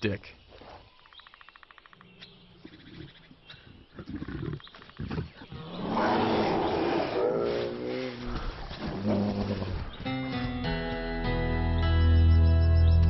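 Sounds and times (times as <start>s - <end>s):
bears growling: 3.9s - 9.9s.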